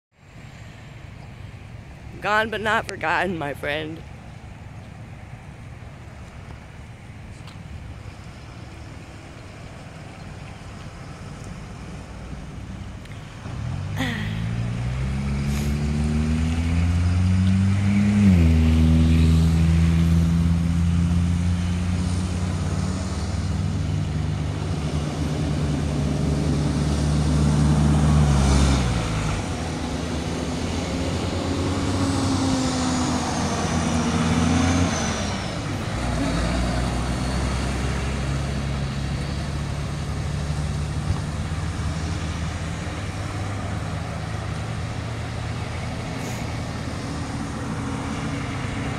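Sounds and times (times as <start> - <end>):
truck engines accelerating: 0.2 - 48.9.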